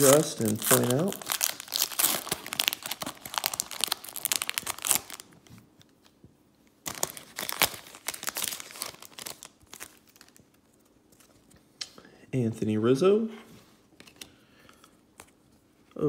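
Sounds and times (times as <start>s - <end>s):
foil wrapper crinkling: 0.0s - 5.4s, 6.8s - 10.9s.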